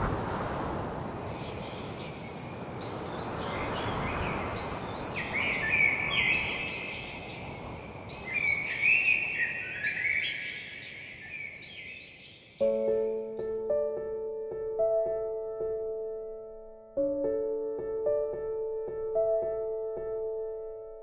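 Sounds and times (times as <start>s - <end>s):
songbirds chirping and trilling: 1.0s - 14.3s.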